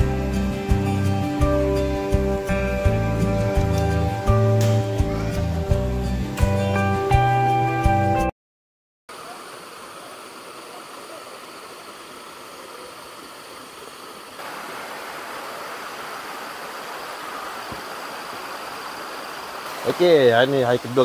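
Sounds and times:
flowing river water: 9.1s - 21.0s
high insect whine: 9.2s - 21.0s.

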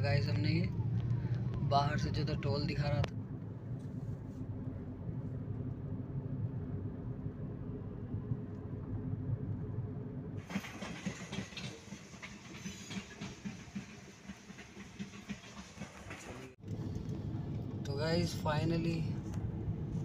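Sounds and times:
car cabin road noise: 0.0s - 10.7s, 15.9s - 20.0s.

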